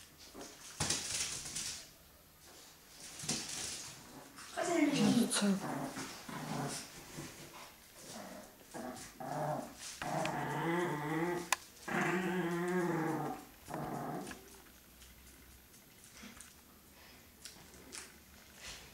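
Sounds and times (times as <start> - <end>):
small dogs growling: 3.8 - 18.9.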